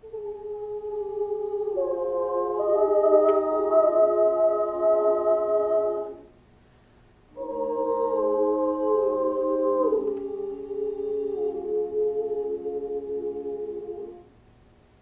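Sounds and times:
girls' choir singing a cappella: 0.0 - 6.3, 7.3 - 14.4.

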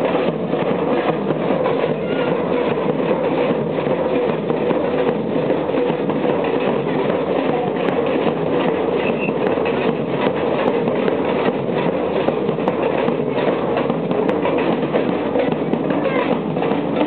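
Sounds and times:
bass drums: 0.0 - 17.0
snare drums: 0.0 - 17.0.

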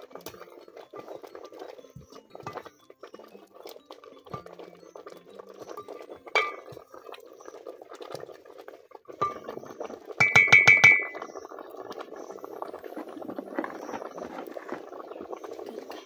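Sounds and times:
water boiling and bubbling: 0.0 - 16.0
wooden spoon knocking on pot: 4.3 - 4.6, 6.3 - 6.9, 10.2 - 11.2.

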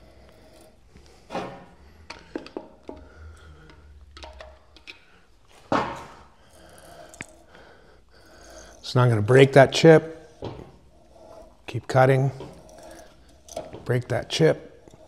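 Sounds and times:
tap and wrench clicks and scrapes: 0.2 - 7.6, 9.8 - 15.0
tap rasping in metal: 9.5 - 13.9.

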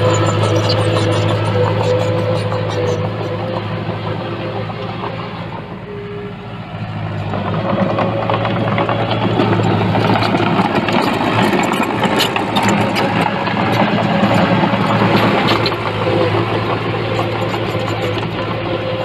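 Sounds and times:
diesel engine droning: 0.0 - 19.0
rattle of clicks and knocks: 7.3 - 18.6.

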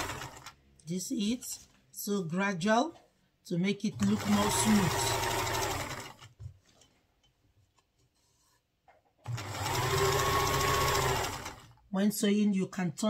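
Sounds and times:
electric sewing machine stitching: 0.0 - 0.6, 4.0 - 6.4, 9.2 - 11.8.

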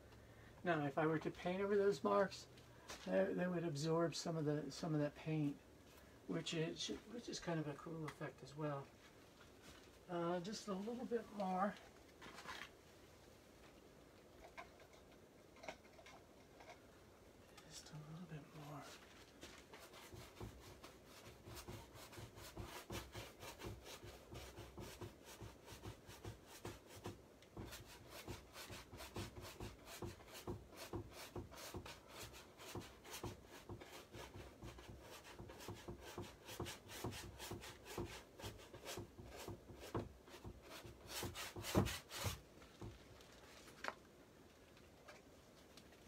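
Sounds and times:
paintbrush scrubbing on canvas: 18.6 - 42.4.

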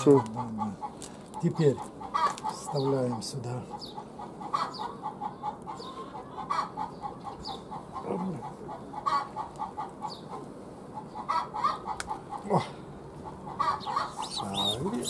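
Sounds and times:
birds calling in rapid notes: 0.0 - 12.4, 13.0 - 15.0
low falling bird call: 13.6 - 15.0.

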